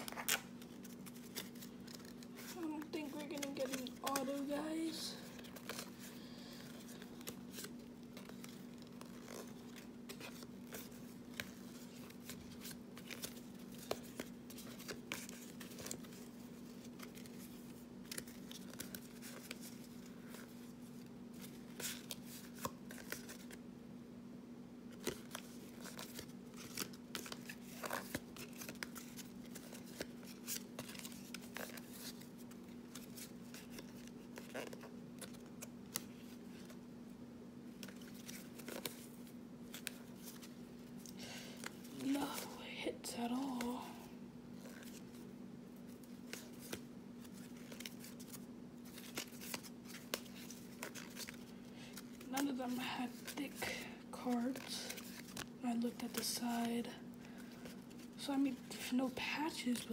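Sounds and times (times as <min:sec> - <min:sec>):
cards flipping and clicking: 0:00.0 - 0:04.6, 0:05.3 - 0:20.7, 0:21.4 - 0:23.6, 0:24.9 - 0:36.8, 0:37.7 - 0:42.5, 0:45.9 - 0:52.5
faint low hum: 0:00.0 - 0:59.9.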